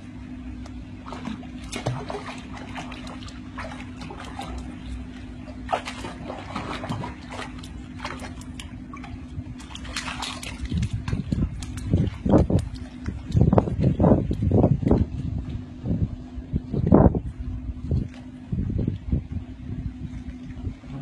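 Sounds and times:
steady low hum: 0.0s - 21.0s
dog splashing in pool water: 1.0s - 15.7s.

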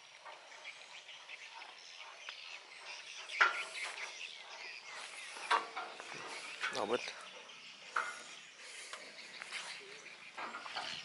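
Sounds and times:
faint outdoor background: 0.0s - 11.0s.

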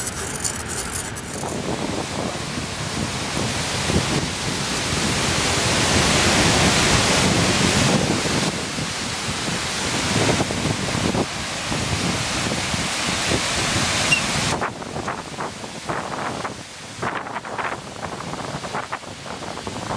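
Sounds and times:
wind buffeting microphone: 0.0s - 19.9s
waterfall rushing: 1.6s - 15.9s.

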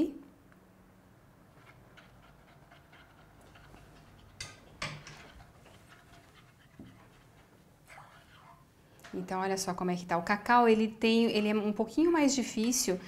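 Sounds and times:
spoon swishing in saucepan: 1.8s - 8.8s.

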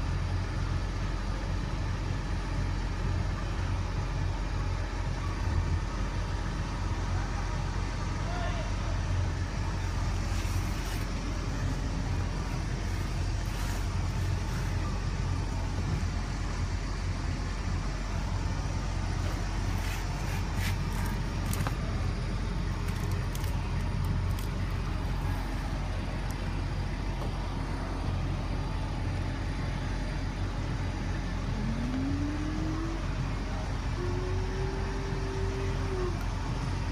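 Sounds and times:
bus engine droning: 0.0s - 36.9s
rising tone: 31.4s - 36.2s.

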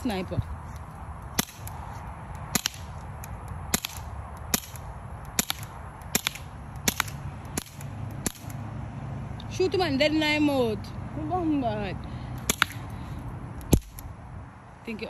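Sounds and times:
air pistol cracks: 1.4s - 8.6s, 12.4s - 12.9s.

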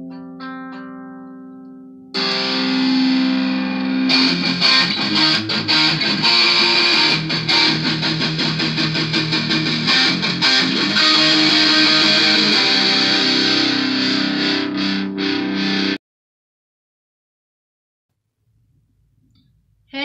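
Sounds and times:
distorted electric guitar: 0.0s - 16.0s
sustained guitar chord: 2.2s - 16.0s.

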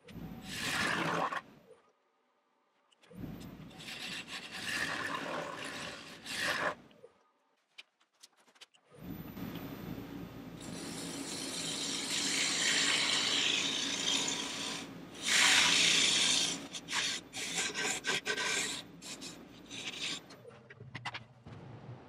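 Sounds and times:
gouge cutting wood on lathe: 3.8s - 6.8s, 10.6s - 20.4s.

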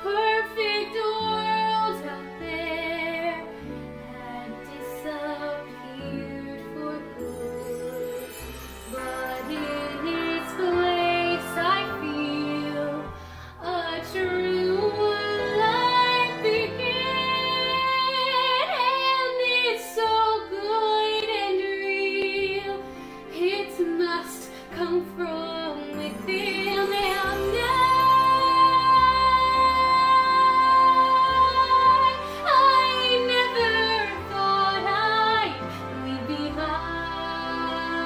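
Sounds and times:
instrumental accompaniment: 0.0s - 38.0s
girl singing: 23.4s - 35.5s.

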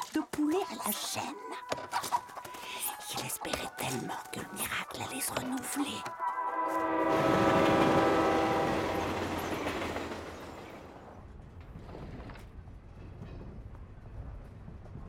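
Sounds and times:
train rumble: 3.0s - 15.0s
train horn: 5.9s - 10.0s.

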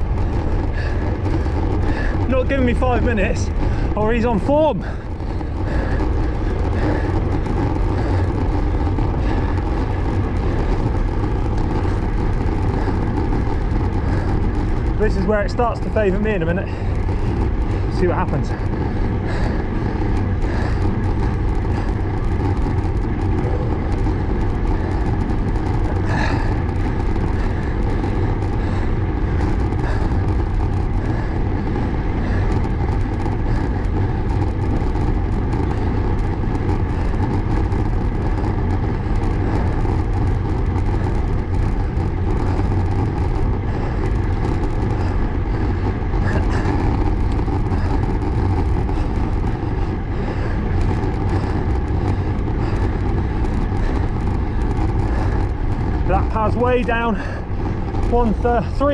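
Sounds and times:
bike tyre noise on tarmac: 0.0s - 58.9s
wind rumble on microphone: 0.0s - 58.9s.

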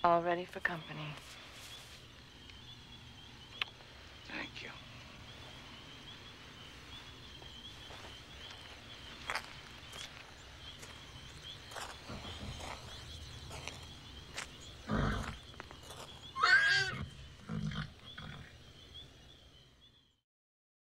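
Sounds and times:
night insects chirping: 0.0s - 20.2s
faint clicks: 3.5s - 3.9s
horses snorting: 12.0s - 13.7s, 14.7s - 18.6s
horse whinnying: 14.9s - 15.4s, 16.4s - 18.5s.

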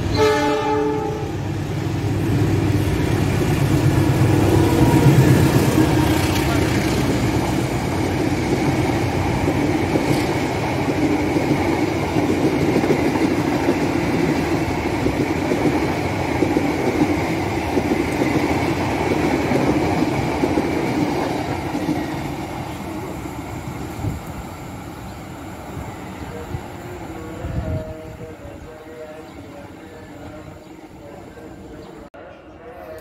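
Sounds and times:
train wheels rumbling on rails: 1.3s - 31.6s.

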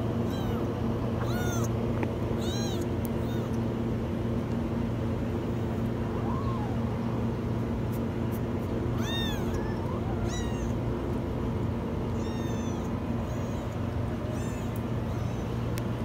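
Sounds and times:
steady low hum: 0.0s - 16.0s
kittens meowing: 0.2s - 3.6s, 6.0s - 6.8s, 8.9s - 10.9s, 12.0s - 15.7s.

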